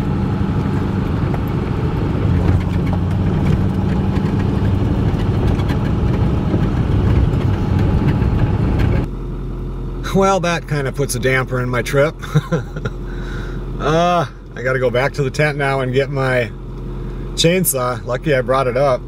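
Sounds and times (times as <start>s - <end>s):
engine idling: 0.0s - 19.0s
vehicle driving on dirt track: 0.0s - 19.0s
rattles and knocks in cab: 0.6s - 9.1s.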